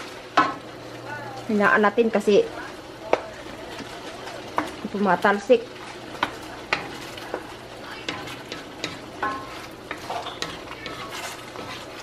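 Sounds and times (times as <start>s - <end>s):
sauce sizzling and bubbling: 0.0s - 12.0s
wooden spoon stirring sauce: 2.5s - 12.0s
spoon knocking against pan: 6.2s - 11.8s.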